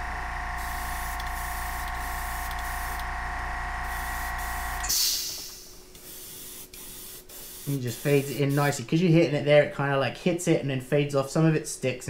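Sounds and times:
air compressor humming: 0:00.0 - 0:08.9
hiss of air: 0:03.8 - 0:08.8.

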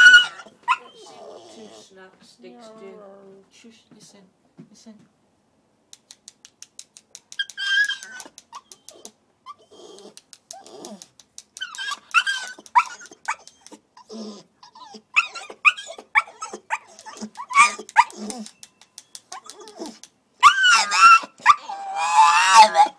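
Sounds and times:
puppy crying high-pitched: 0:00.0 - 0:01.8, 0:07.4 - 0:11.0, 0:11.6 - 0:18.6, 0:19.3 - 0:22.9.

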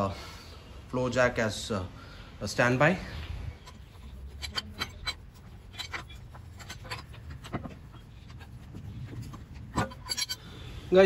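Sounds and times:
wheel brace clicking on lug bolts: 0:03.4 - 0:10.8.

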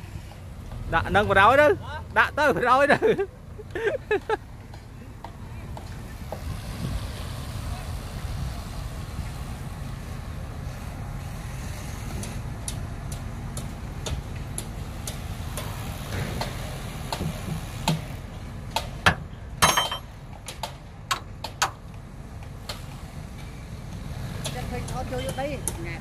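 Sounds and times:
diesel engine idling: 0:00.0 - 0:26.0
sharp clicks and knocks: 0:12.2 - 0:25.8.

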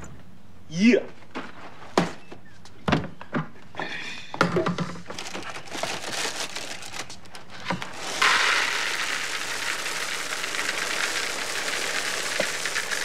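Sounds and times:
cereal box rustling: 0:05.1 - 0:13.0
cereal pouring into a bowl: 0:07.9 - 0:13.0.

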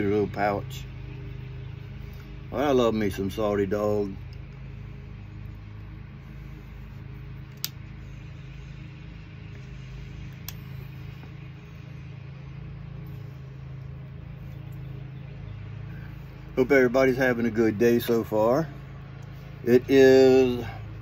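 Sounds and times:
sharp clicks: 0:07.5 - 0:07.8, 0:10.3 - 0:10.7.

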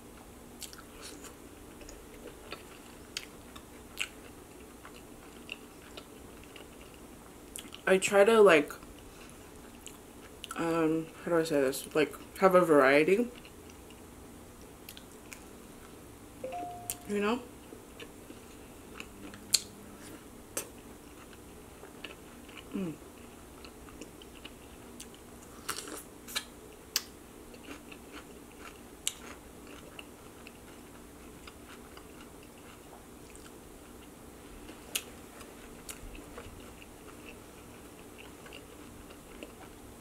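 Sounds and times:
person chewing: 0:00.6 - 0:07.8, 0:09.0 - 0:10.6, 0:18.0 - 0:39.8.

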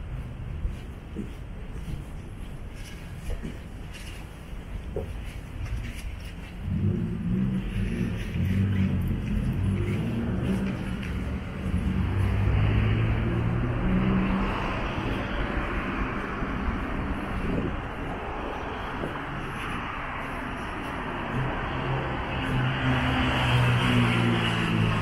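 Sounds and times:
vehicle engine humming: 0:00.0 - 0:25.0
car passing: 0:06.6 - 0:25.0.

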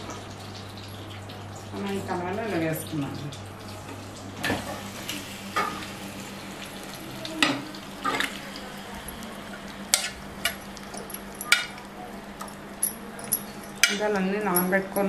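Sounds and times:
chicken sizzling in oil: 0:04.2 - 0:12.3
steel bowl clinking on pan: 0:09.9 - 0:15.0.

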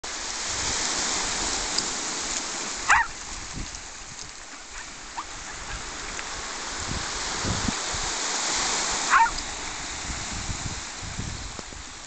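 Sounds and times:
waves on shingle beach: 0:00.0 - 0:12.0
dog barking: 0:02.8 - 0:03.1, 0:09.1 - 0:09.4.

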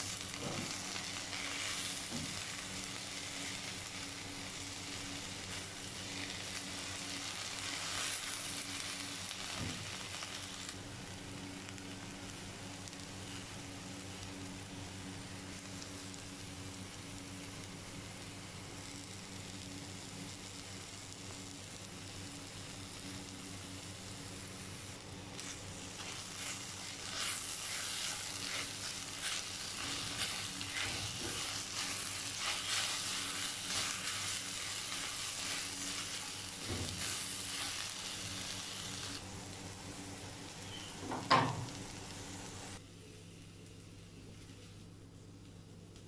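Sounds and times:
low steady hum: 0:00.0 - 0:46.0
okra sizzling in a wok: 0:00.0 - 0:46.0
spatula stirring and scraping: 0:25.4 - 0:38.6.

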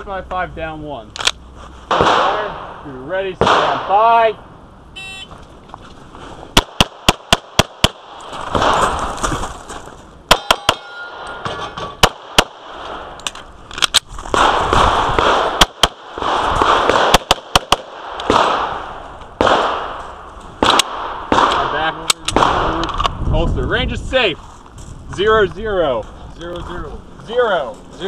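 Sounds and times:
pistol shots: 0:01.9 - 0:02.8, 0:03.4 - 0:04.0, 0:06.6 - 0:09.0, 0:10.3 - 0:11.3, 0:12.0 - 0:13.2, 0:14.3 - 0:23.1.

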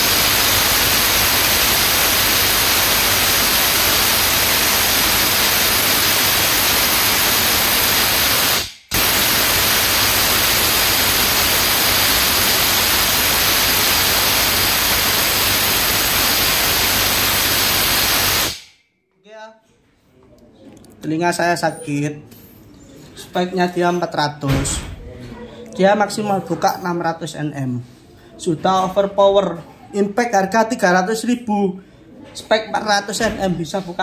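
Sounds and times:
impact wrench hammering: 0:01.0 - 0:14.4.

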